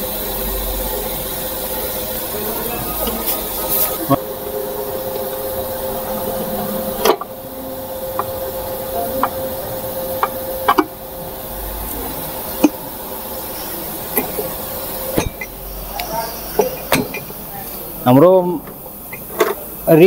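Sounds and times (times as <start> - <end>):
faint hum: 0.0 - 19.9
steady hiss: 0.0 - 20.0
metal knocks and clinks: 15.2 - 15.6.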